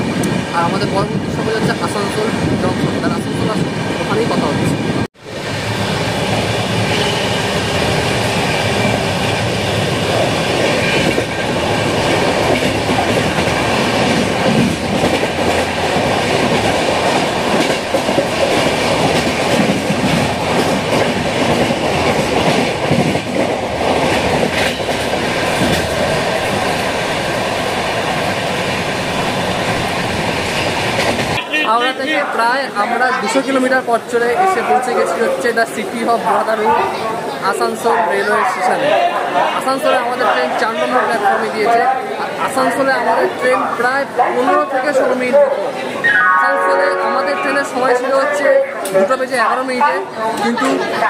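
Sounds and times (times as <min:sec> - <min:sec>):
train rumble: 0:00.0 - 0:32.8
train wheels clacking over rail joints: 0:10.1 - 0:27.4.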